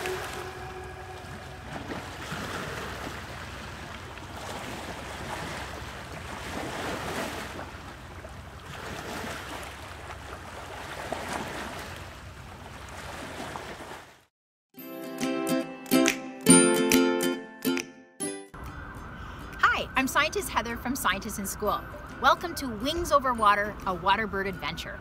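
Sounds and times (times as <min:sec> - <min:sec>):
rushing water: 0:00.0 - 0:14.3.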